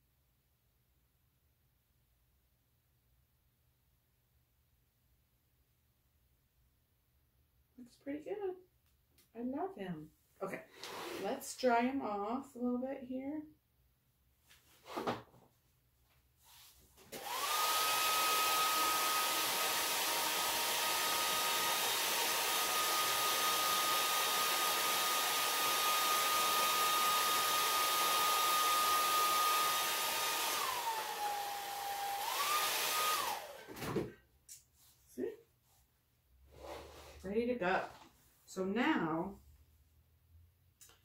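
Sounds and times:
hot-air dryer blowing and whining: 17.1s - 33.8s.

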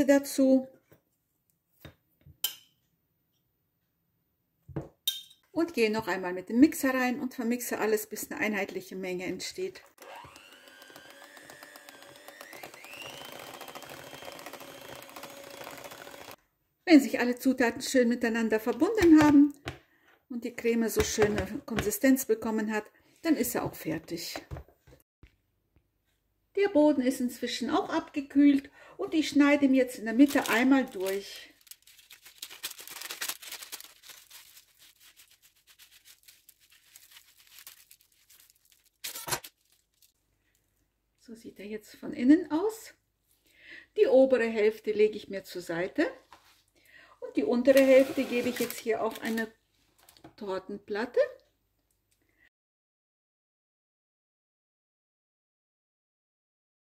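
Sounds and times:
electric hand mixer whine: 10.0s - 16.4s, 47.8s - 48.7s.

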